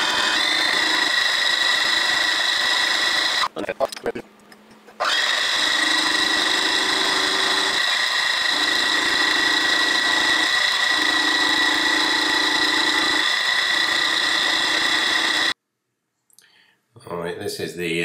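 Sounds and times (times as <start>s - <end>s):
milling spindle whine: 0.0s - 3.5s, 5.0s - 15.6s.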